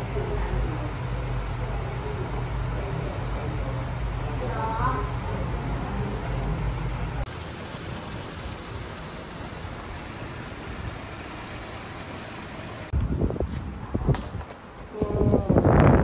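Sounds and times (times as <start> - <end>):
steady outdoor hiss: 0.0 - 16.0
wind buffeting microphone: 12.9 - 16.0.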